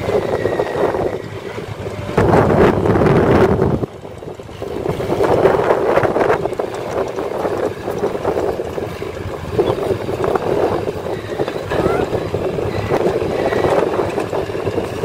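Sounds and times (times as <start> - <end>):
heavy diesel engines rumbling: 0.0 - 15.0
wind noise on microphone: 0.0 - 15.0.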